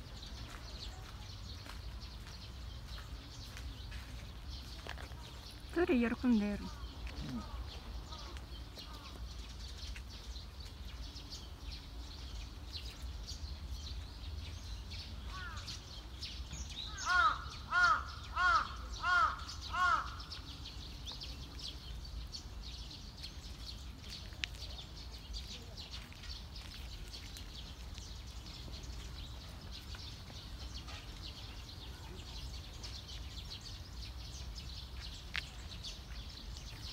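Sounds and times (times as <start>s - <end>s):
faint background noise: 0.0s - 36.9s
crow cawing: 16.9s - 20.2s.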